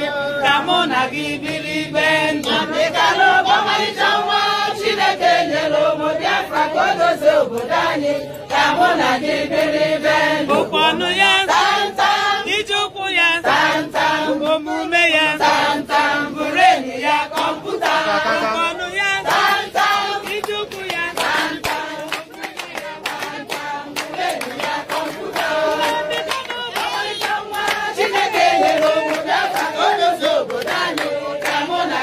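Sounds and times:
rhythmic hand clapping: 0:00.0 - 0:32.0
women singing in chorus: 0:00.0 - 0:32.0.

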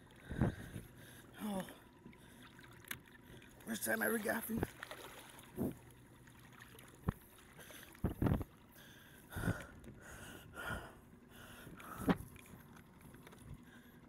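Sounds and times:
water splashing: 0:00.0 - 0:09.6.

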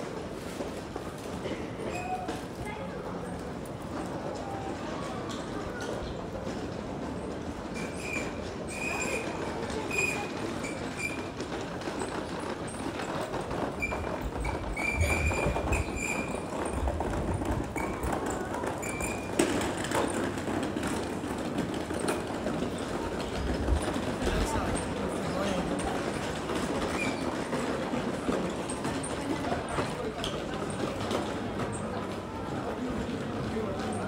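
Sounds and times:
murmur of background voices: 0:00.0 - 0:34.0.

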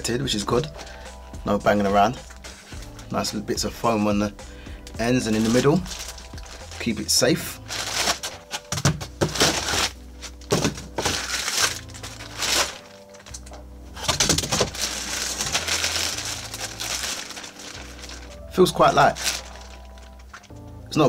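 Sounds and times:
background music: 0:00.0 - 0:21.0
plastic bag crinkling: 0:05.1 - 0:20.6.

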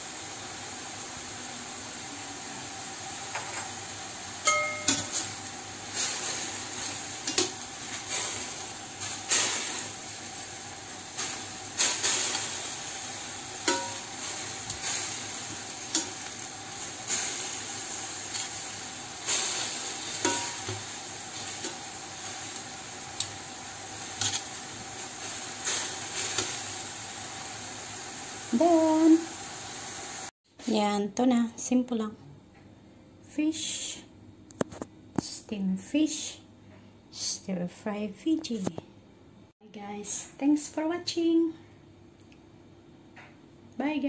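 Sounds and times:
greens sizzling in a frying pan: 0:00.0 - 0:30.3
metal utensil scraping and clinking: 0:06.8 - 0:08.4, 0:13.6 - 0:15.2, 0:19.3 - 0:20.8, 0:24.2 - 0:24.5.

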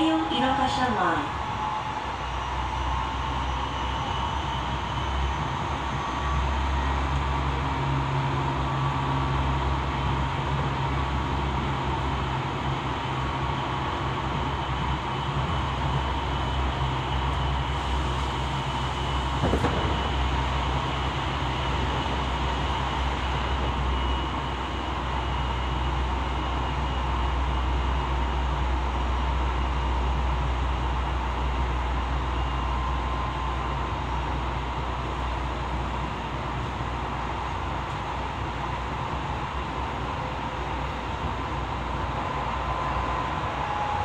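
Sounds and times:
train cabin rumble: 0:00.0 - 0:26.4.

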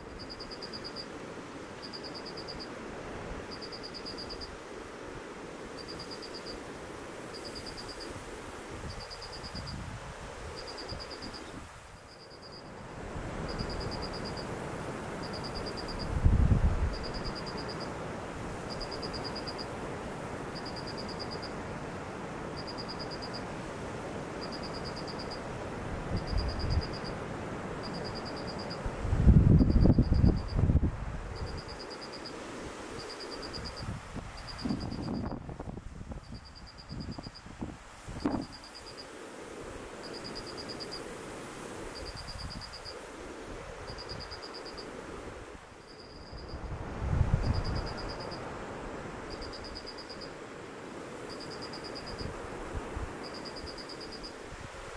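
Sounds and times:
insect chirping in pulsed trills: 0:00.0 - 0:27.2, 0:27.8 - 0:35.5, 0:36.2 - 0:37.5, 0:38.2 - 0:54.9
steady wind hiss: 0:00.0 - 0:54.9
wind buffeting microphone: 0:08.6 - 0:11.8, 0:15.9 - 0:17.4, 0:28.9 - 0:31.7, 0:33.5 - 0:38.6, 0:46.3 - 0:49.4.

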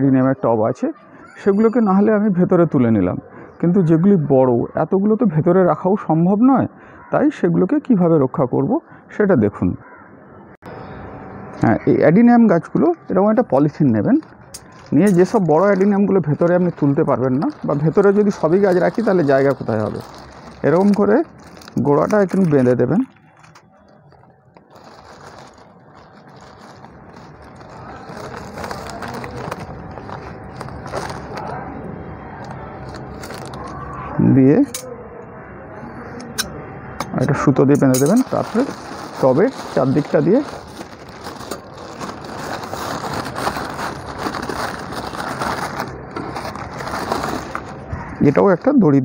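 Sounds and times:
plastic sheet crinkling: 0:13.7 - 0:31.8, 0:32.4 - 0:33.9, 0:38.0 - 0:48.6.

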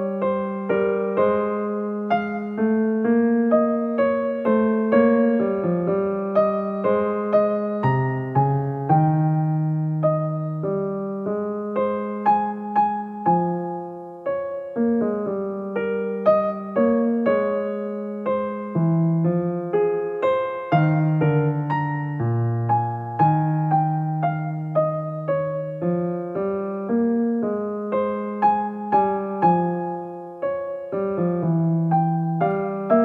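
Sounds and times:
gentle solo piano piece: 0:00.0 - 0:33.0.

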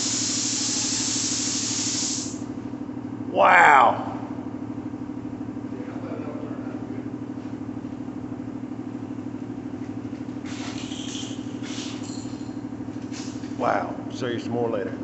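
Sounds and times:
spray gun hissing: 0:00.0 - 0:02.4.

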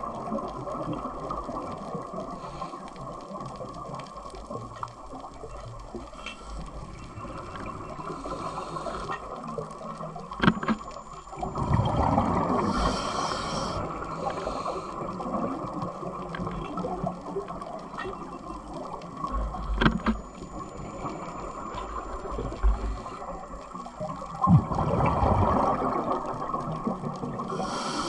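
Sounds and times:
underwater hiss and rumble: 0:00.0 - 0:28.0
bubbling rush: 0:24.3 - 0:28.0.

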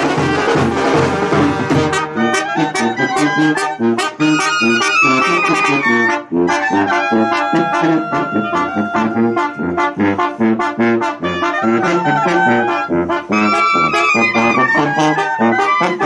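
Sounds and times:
brass band music: 0:00.0 - 0:16.0.

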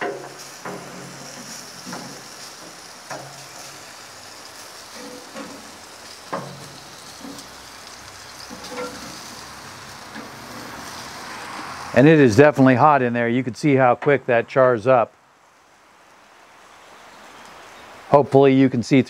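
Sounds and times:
light knocks and clicks on grate: 0:00.0 - 0:01.1, 0:03.1 - 0:03.5, 0:05.0 - 0:05.7, 0:06.3 - 0:07.5, 0:08.5 - 0:09.3
meat sizzling on a grill: 0:00.0 - 0:13.4, 0:15.4 - 0:19.0.

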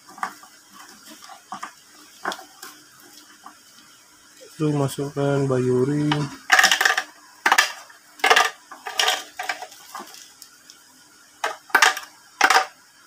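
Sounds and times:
ceramic rings clacking into plastic: 0:06.5 - 0:09.8.

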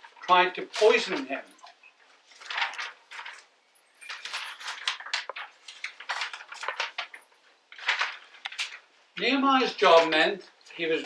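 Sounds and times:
metal cups clinking and rattling: 0:02.6 - 0:05.4.

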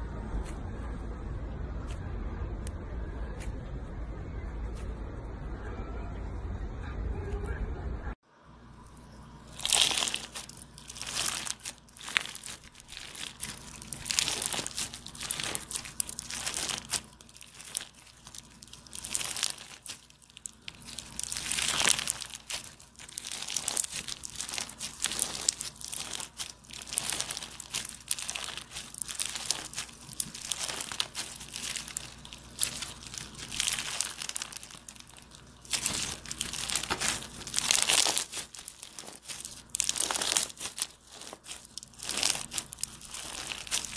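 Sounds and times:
stress ball squished in hands: 0:09.6 - 0:43.9.

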